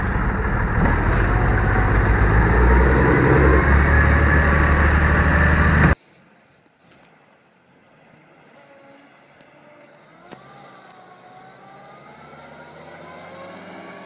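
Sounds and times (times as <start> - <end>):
truck engine approaching: 0.0 - 6.0, 8.7 - 14.0
whine rising in pitch: 0.0 - 6.0, 8.7 - 14.0.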